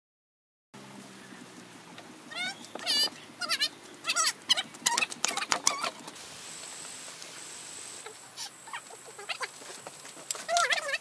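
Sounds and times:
squeaky animal calls: 2.3s - 6.0s, 8.0s - 9.6s, 10.4s - 11.0s.

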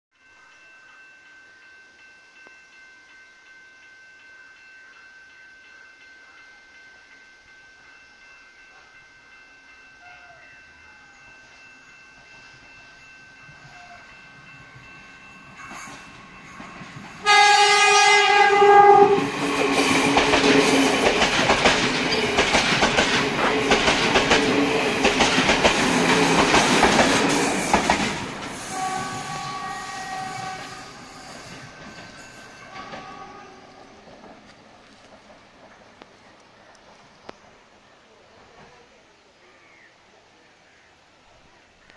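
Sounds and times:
train rumble: 11.3s - 39.0s
wheels clicking over rail joints: 15.6s - 29.7s, 30.3s - 37.6s
train horn blast: 17.2s - 20.8s, 28.6s - 31.5s, 32.6s - 34.0s.

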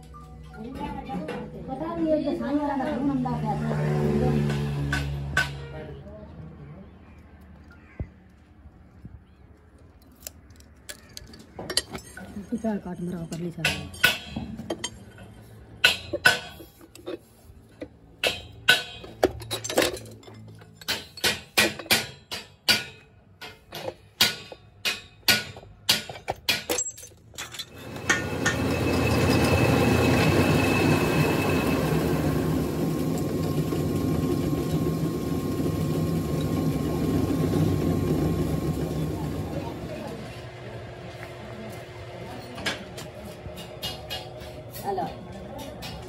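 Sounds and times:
metal lathe machining: 27.8s - 39.9s.

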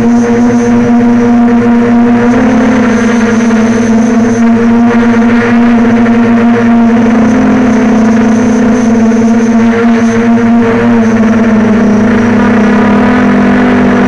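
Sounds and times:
drone propellers humming: 0.0s - 14.0s.

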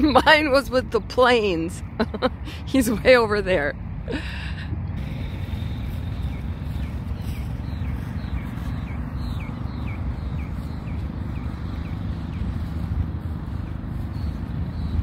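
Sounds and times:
low steady rumble: 0.0s - 15.0s
bird chirping: 5.1s - 15.0s.

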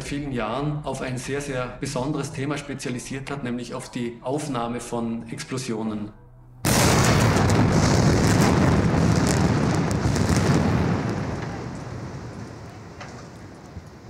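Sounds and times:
explosive blast: 6.6s - 14.0s
rumble with crackle: 7.0s - 14.0s.

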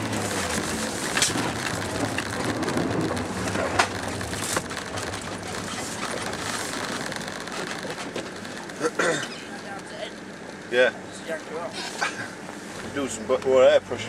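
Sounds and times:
tyres crunching through snow: 0.0s - 9.8s.

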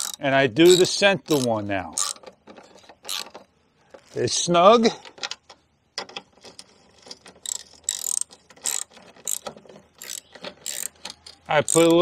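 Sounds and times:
ratchet wrench clicking: 0.0s - 3.4s, 7.0s - 12.0s.

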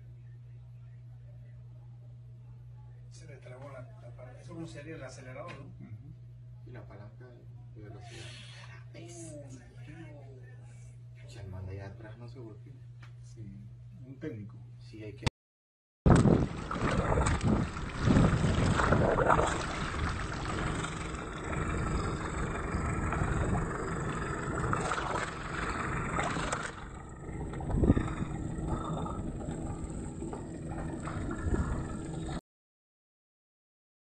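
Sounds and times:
faint steady hum: 0.0s - 15.2s, 16.1s - 32.4s
water rushing and splashing: 16.1s - 32.4s
wind buffeting microphone: 16.1s - 32.4s.

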